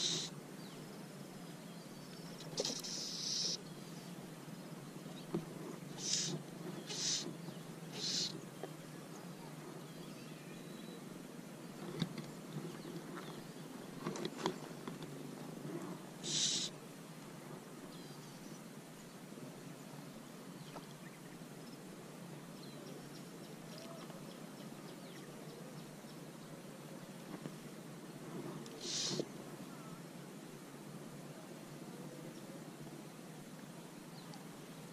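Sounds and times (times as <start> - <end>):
bird hooting: 0.0 - 0.4, 2.6 - 3.7, 5.9 - 8.4, 16.2 - 16.8, 28.7 - 30.0
brief hiss: 0.0 - 0.4, 2.4 - 3.6, 6.0 - 8.4, 16.2 - 16.8, 28.7 - 29.3.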